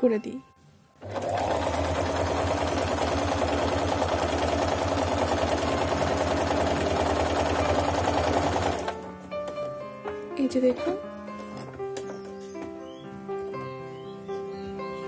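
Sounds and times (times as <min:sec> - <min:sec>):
electric sewing machine stitching: 0:01.0 - 0:09.0.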